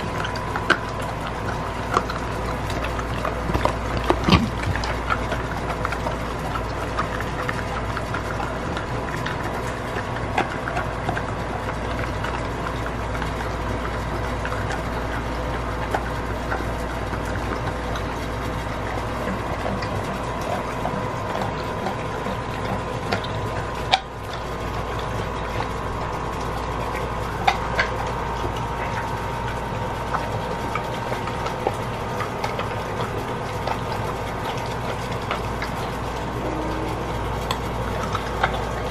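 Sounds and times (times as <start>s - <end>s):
teeth clicking: 0.0s - 13.3s
dog chewing raw meat: 0.0s - 38.9s
steady background hum: 0.0s - 38.9s.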